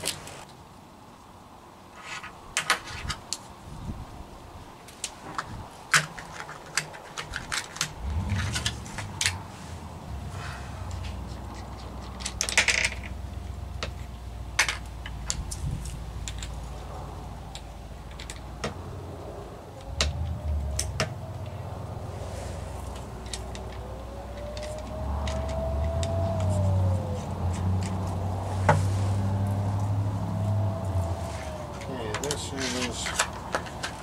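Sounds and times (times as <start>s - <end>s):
small parts clicking and tapping: 11.3s - 13.2s, 13.8s - 16.6s, 17.5s - 18.8s, 22.9s - 26.6s.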